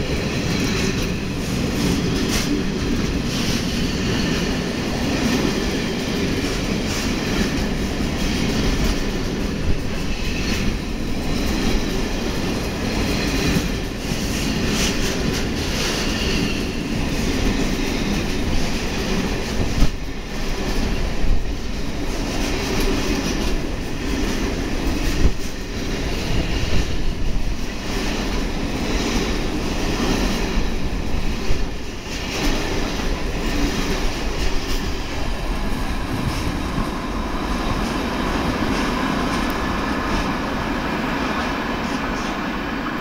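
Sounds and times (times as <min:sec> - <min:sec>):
freight train wheels clattering: 0:00.0 - 0:43.0.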